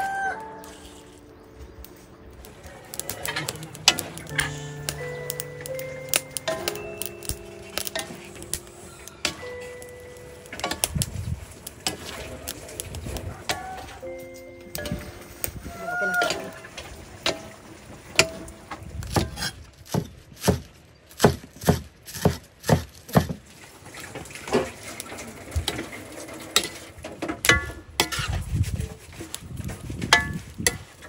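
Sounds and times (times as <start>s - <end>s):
spatulas clacking against a wok: 2.9s - 11.0s, 11.6s - 12.9s, 17.2s - 17.6s, 18.2s - 18.5s, 26.6s - 28.4s, 30.1s - 31.0s.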